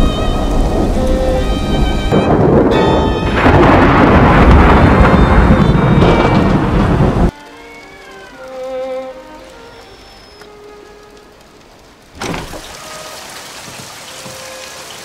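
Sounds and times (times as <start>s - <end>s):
faint music score: 0.0s - 5.4s, 7.3s - 12.2s
rumbling thunder: 0.0s - 7.3s
heavy rain: 0.0s - 15.0s.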